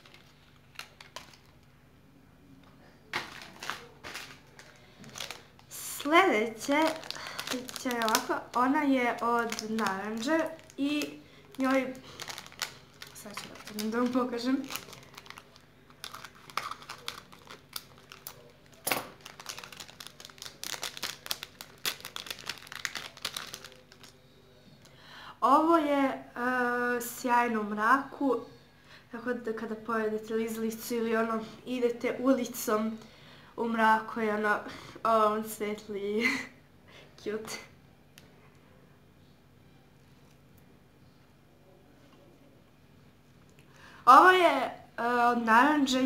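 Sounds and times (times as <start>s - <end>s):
plastic wrapper crinkling: 0.0s - 1.8s, 3.1s - 24.2s.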